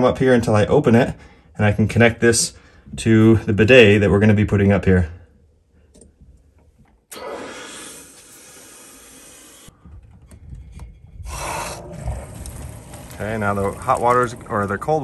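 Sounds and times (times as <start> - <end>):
water hissing through pipes: 7.1 - 9.7, 11.2 - 15.0.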